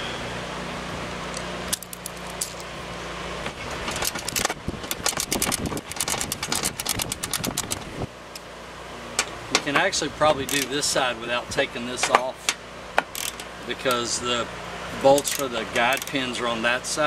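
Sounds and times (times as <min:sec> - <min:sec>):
steady low hum: 0:00.0 - 0:17.0
ratchet clicking on metal: 0:03.9 - 0:08.4, 0:10.4 - 0:10.8, 0:13.0 - 0:14.1, 0:15.1 - 0:16.3.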